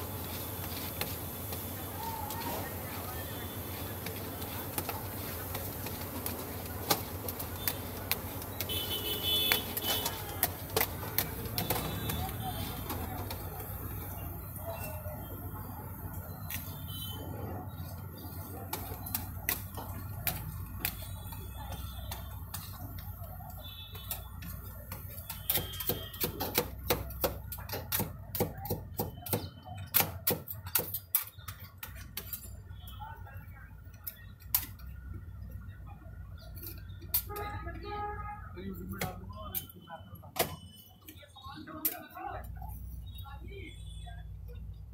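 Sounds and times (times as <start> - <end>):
metal spatulas chopping and scraping: 0.1 - 14.3, 16.4 - 32.9.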